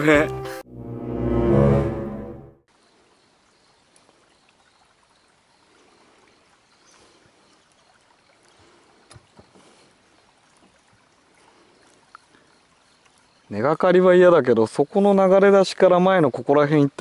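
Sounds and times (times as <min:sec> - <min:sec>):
faint water lapping: 0:02.7 - 0:14.4.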